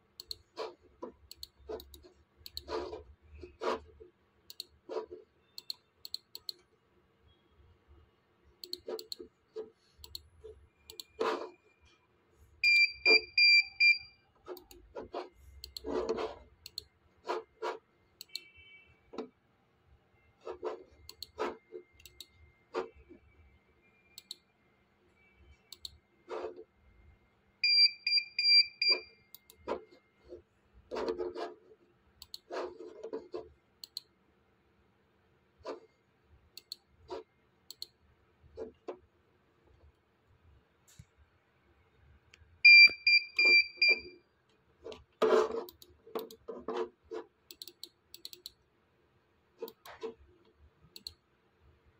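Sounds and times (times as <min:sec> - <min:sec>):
computer mouse clicking: 0:00.1 - 0:03.9, 0:04.5 - 0:06.7, 0:08.6 - 0:10.3, 0:10.9 - 0:11.5, 0:14.4 - 0:18.5, 0:20.5 - 0:23.0, 0:24.2 - 0:24.5, 0:25.7 - 0:26.7, 0:28.8 - 0:31.6, 0:32.2 - 0:34.1, 0:36.5 - 0:38.0, 0:44.5 - 0:48.6, 0:49.6 - 0:51.2.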